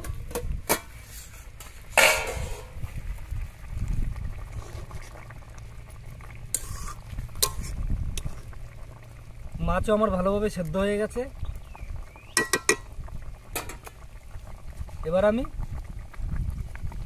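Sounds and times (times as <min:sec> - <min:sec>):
curry bubbling: 0:00.0 - 0:17.0
plate lid clattering: 0:02.0 - 0:02.8.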